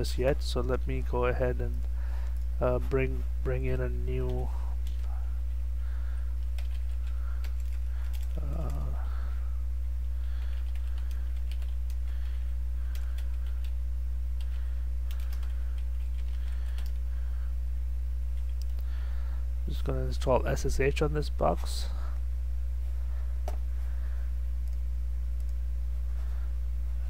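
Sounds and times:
low electrical hum: 0:00.0 - 0:27.0
keyboard typing: 0:06.4 - 0:08.9, 0:10.4 - 0:13.8, 0:14.4 - 0:17.0, 0:18.3 - 0:18.8.

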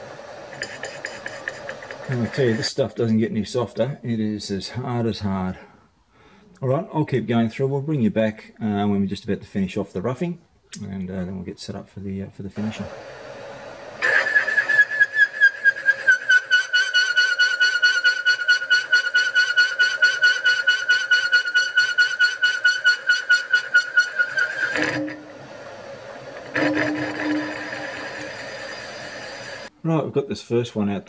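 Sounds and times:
machine cutter squealing on steel: 0:14.0 - 0:25.4, 0:26.4 - 0:29.7.

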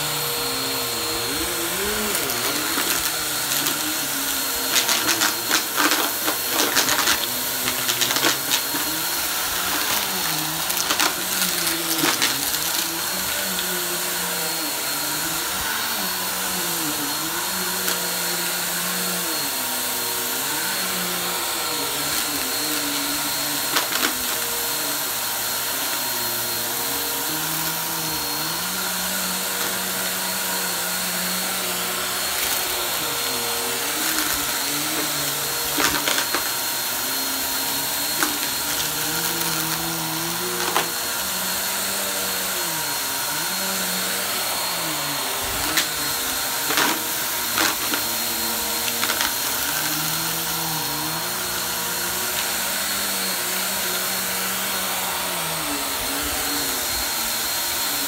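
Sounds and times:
vacuum cleaner running on carpet: 0:00.0 - 0:58.0.

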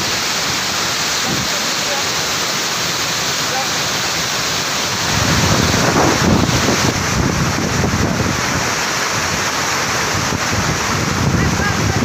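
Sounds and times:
waterfall rushing onto rocks: 0:00.0 - 0:12.0
wind rumbling on microphone: 0:04.9 - 0:12.0.

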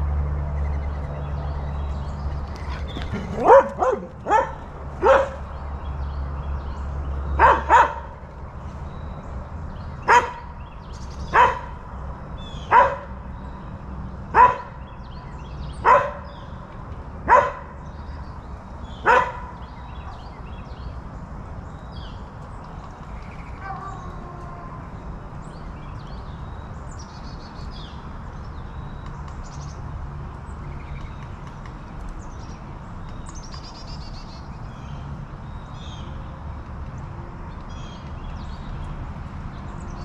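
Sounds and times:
dog barking: 0:03.1 - 0:05.4, 0:07.4 - 0:08.1, 0:10.1 - 0:10.5, 0:11.3 - 0:11.7, 0:12.7 - 0:13.1, 0:14.4 - 0:14.8, 0:15.8 - 0:16.3, 0:17.3 - 0:17.7, 0:19.0 - 0:19.6.

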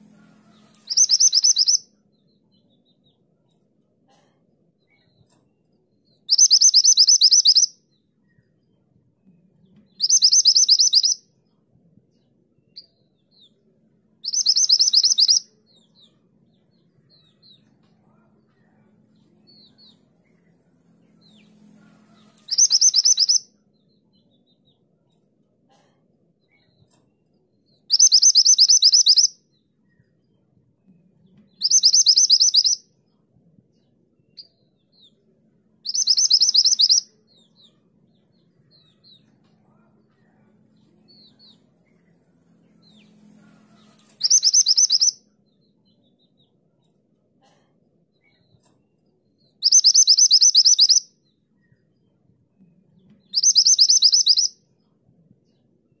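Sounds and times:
bird soft chirps: 0:00.5 - 0:03.2, 0:04.8 - 0:08.8, 0:09.4 - 0:11.6, 0:14.2 - 0:24.8, 0:26.4 - 0:33.2, 0:33.8 - 0:46.4, 0:48.2 - 0:52.2, 0:52.9 - 0:54.6
bird rapid trilled song: 0:00.6 - 0:01.9, 0:06.3 - 0:07.7, 0:10.0 - 0:11.2, 0:14.2 - 0:15.5, 0:22.2 - 0:23.5, 0:27.9 - 0:29.4, 0:31.5 - 0:32.8, 0:35.9 - 0:37.1, 0:44.1 - 0:45.2, 0:49.6 - 0:51.8, 0:53.2 - 0:54.6.

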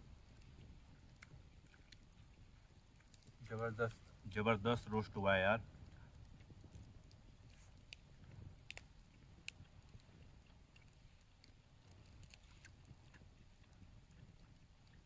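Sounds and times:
people chewing food: 0:00.0 - 0:15.0
faint sharp clicks: 0:08.6 - 0:10.1.

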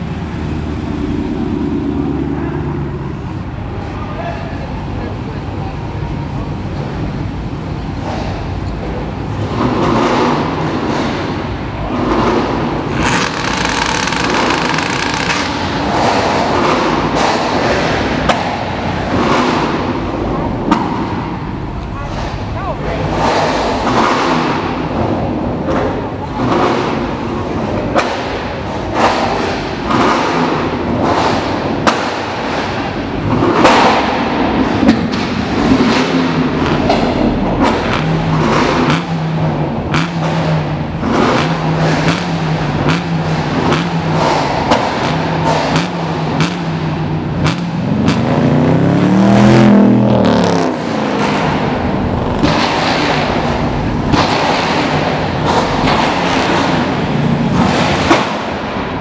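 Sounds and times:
cars driving past: 0:00.0 - 0:59.0
engine revving: 0:09.3 - 0:25.1, 0:33.2 - 0:59.0.

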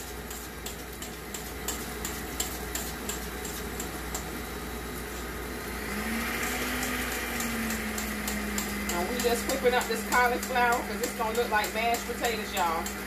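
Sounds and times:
beater ticking in steel bowl: 0:00.1 - 0:04.3, 0:06.6 - 0:13.0
stand mixer motor humming: 0:05.5 - 0:13.0.

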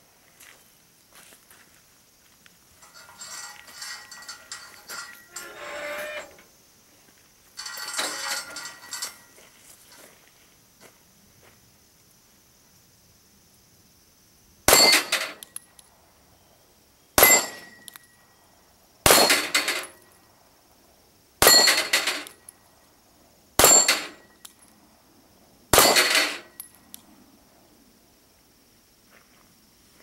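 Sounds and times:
steel plate clanging: 0:02.8 - 0:06.4, 0:07.6 - 0:09.3, 0:14.7 - 0:15.4, 0:19.1 - 0:20.0, 0:21.4 - 0:22.3, 0:23.6 - 0:24.3
pistol shots: 0:19.1 - 0:19.5, 0:23.6 - 0:24.0, 0:25.7 - 0:26.4.

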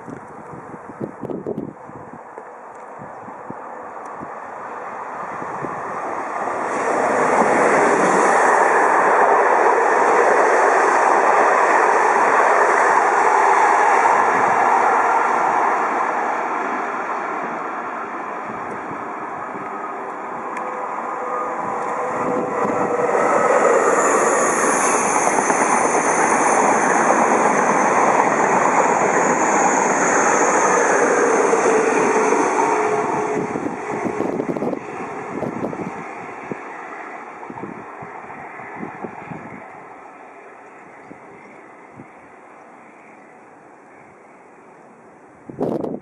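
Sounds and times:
electric train rumbling past: 0:00.0 - 0:46.0
high-speed train with high whine: 0:00.0 - 0:46.0.

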